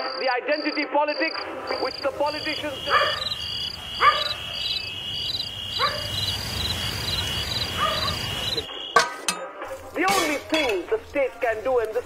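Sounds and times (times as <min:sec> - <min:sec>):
crickets chirping: 0:00.0 - 0:08.9
high insect trill: 0:00.0 - 0:08.9.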